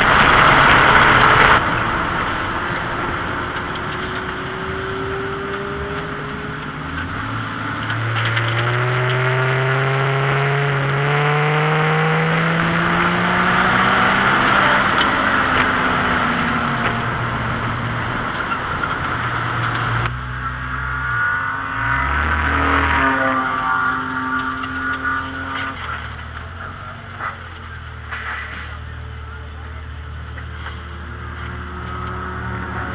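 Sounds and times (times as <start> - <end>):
car engine revving from inside cabin: 8.3 - 16.2, 20.4 - 26.1.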